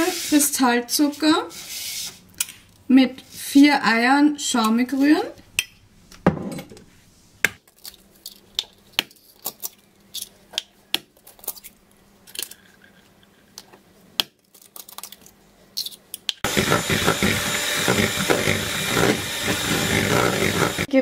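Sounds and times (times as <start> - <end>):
electric hand mixer whisking: 16.4 - 20.9.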